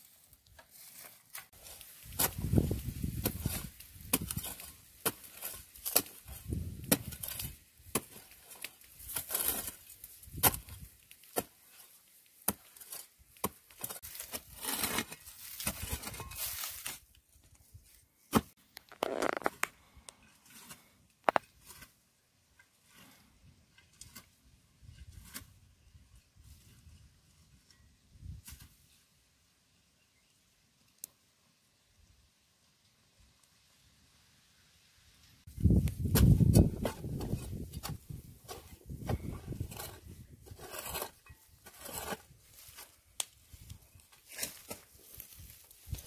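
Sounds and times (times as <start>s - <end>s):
soil crunching and crumbling: 0.0s - 27.0s, 35.5s - 46.0s
digging tool striking hard earth: 1.6s - 11.6s, 35.7s - 42.9s.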